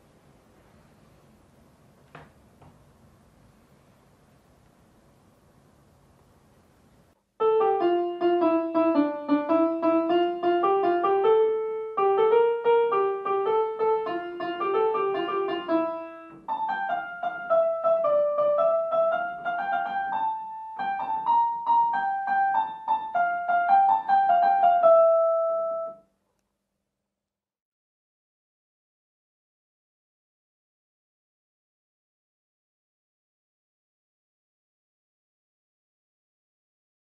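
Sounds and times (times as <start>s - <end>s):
electronic keyboard piano melody: 7.4s - 26.1s.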